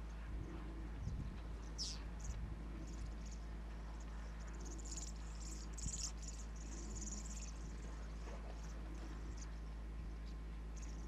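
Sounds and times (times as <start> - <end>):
steady low hum: 0.0 - 11.0
insects pulsing buzz: 1.6 - 9.6, 10.7 - 11.0
high bird chirps: 4.6 - 7.7.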